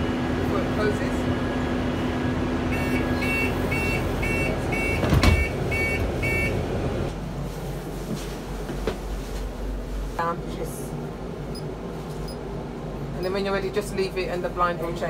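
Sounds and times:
vehicle warning beeper two-tone beeps: 0:02.7 - 0:06.6.

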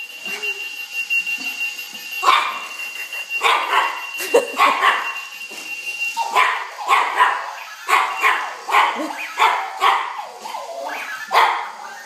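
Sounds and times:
thin high tone: 0:00.0 - 0:12.0
puppy barking and yipping: 0:03.4 - 0:05.1, 0:06.2 - 0:12.0.

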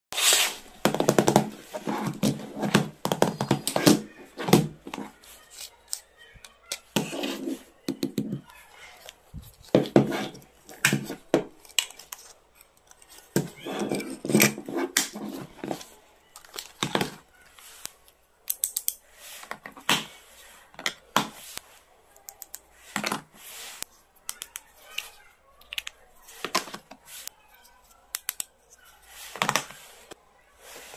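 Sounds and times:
pencils knocking against plastic: 0:00.8 - 0:05.1, 0:05.9 - 0:08.5.

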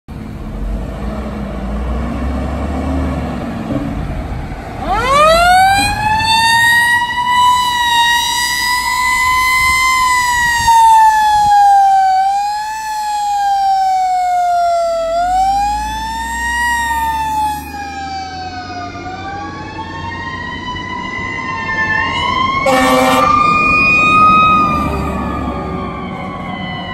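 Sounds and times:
road traffic passing: 0:00.1 - 0:26.9
fire truck siren wailing: 0:01.5 - 0:26.9
second siren: 0:04.7 - 0:26.9.

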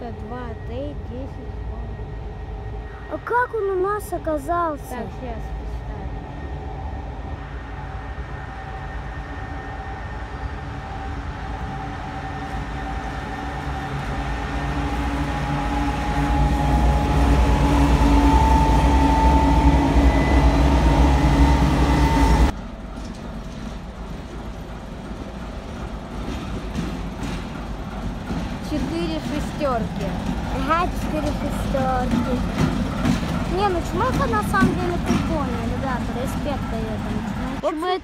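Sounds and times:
diesel locomotive passing: 0:00.0 - 0:38.0.

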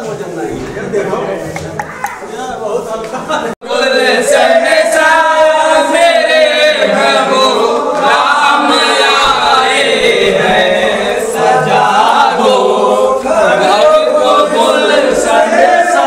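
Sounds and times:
men chanting together: 0:03.6 - 0:16.0.

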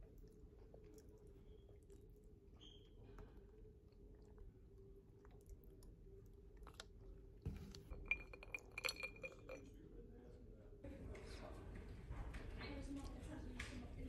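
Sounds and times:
glass clinking as stirred: 0:07.5 - 0:09.8.

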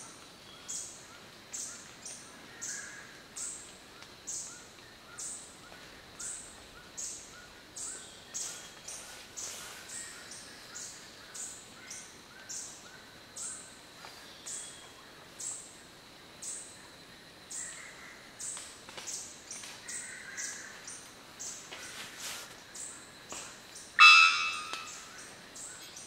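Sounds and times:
faint bird notes: 0:24.0 - 0:25.3.

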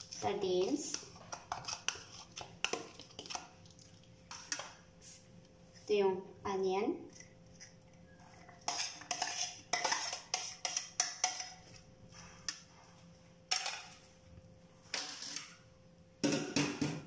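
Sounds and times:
metal spoon scraping plates: 0:08.3 - 0:11.6.

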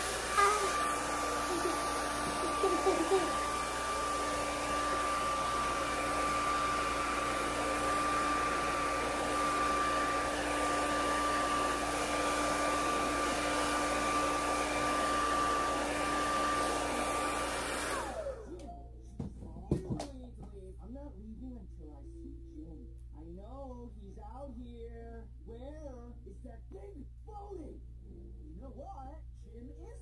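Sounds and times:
hair dryer blowing: 0:00.0 - 0:18.6.

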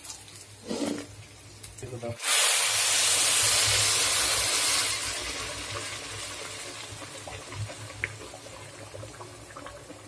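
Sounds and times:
water hissing in hot pot: 0:02.1 - 0:10.0.

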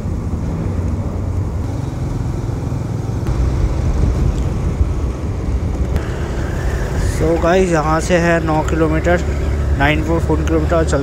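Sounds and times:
motorcycle engine running: 0:00.0 - 0:11.0
wind rumbling on microphone: 0:03.0 - 0:08.1.

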